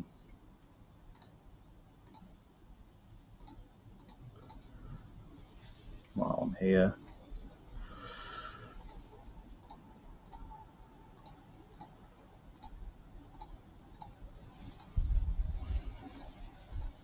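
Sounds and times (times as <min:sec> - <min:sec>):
low background noise: 0:00.0 - 0:17.0
computer mouse clicks: 0:01.1 - 0:01.4, 0:02.0 - 0:02.3, 0:03.4 - 0:04.7, 0:08.8 - 0:09.0, 0:09.6 - 0:14.9, 0:16.0 - 0:17.0.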